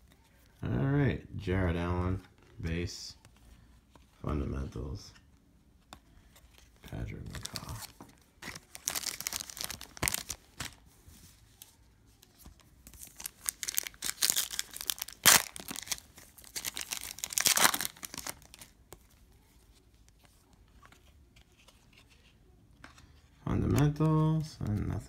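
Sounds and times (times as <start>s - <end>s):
foil wrapper crinkling: 8.4s - 10.8s, 12.9s - 18.8s.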